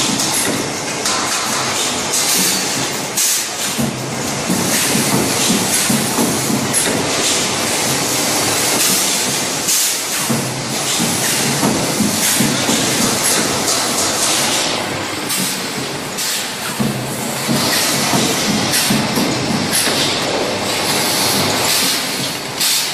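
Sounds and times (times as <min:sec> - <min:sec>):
welding machine mechanical clatter: 0:00.0 - 0:22.9
pneumatic air hiss: 0:21.1 - 0:22.9.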